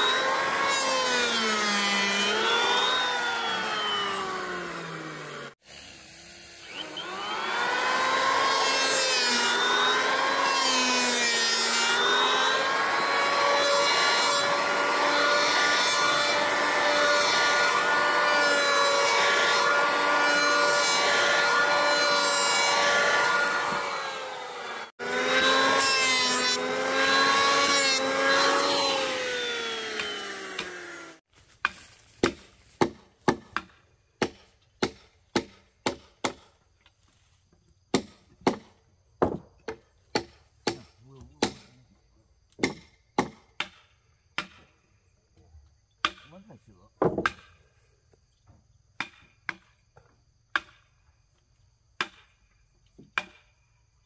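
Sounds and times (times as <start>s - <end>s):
power saw cutting wood: 0.0s - 33.4s
sharp knocks: 47.0s - 47.4s.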